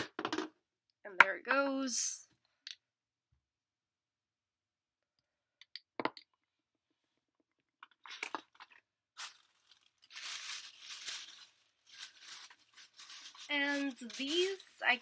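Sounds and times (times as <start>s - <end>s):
packaging crinkling and rustling: 8.0s - 15.0s.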